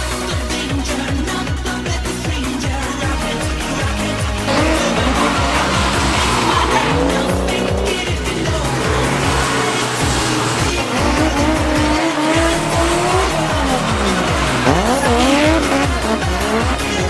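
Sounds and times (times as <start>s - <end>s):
music with fast steady beat: 0.0s - 17.0s
car engine revving: 3.1s - 17.0s
tyres squealing: 3.9s - 17.0s.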